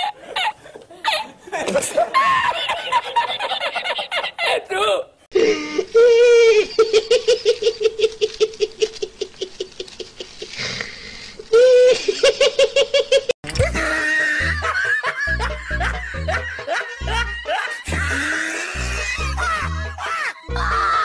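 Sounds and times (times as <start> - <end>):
person laughing high-pitched: 0.0 - 4.7, 5.4 - 10.5, 11.5 - 12.5, 13.5 - 21.0
in-breath: 10.5 - 11.5.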